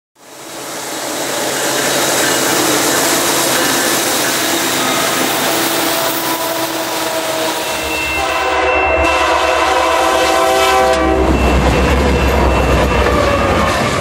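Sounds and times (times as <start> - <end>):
freight train passing at speed: 0.2 - 14.0.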